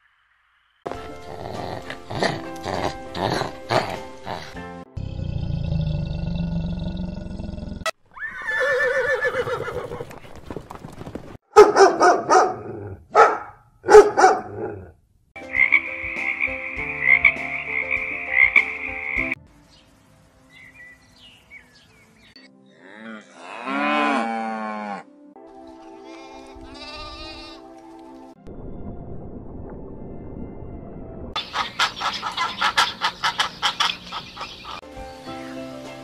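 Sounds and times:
horse whinnying: 8.1s - 10.3s, 26.0s - 27.6s
frogs croaking: 15.4s - 19.4s, 31.4s - 34.8s
pulsing frog call: 15.4s - 19.4s, 31.4s - 34.8s
cow mooing: 22.7s - 25.2s, 26.0s - 27.6s.

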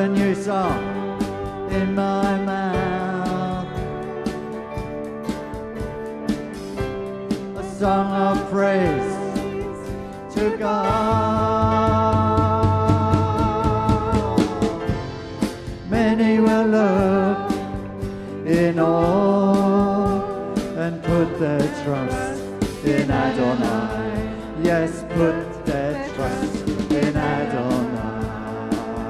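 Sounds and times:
acoustic guitar: 0.0s - 29.0s
bass guitar: 0.0s - 29.0s
drum kit beat: 0.0s - 29.0s
voices singing: 18.5s - 29.0s.

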